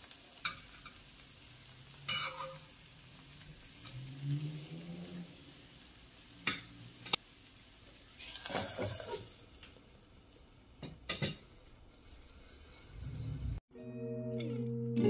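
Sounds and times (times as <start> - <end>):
pancakes sizzling in oil: 0.0 - 13.6
metal spoon clinking on pan: 2.1 - 2.7.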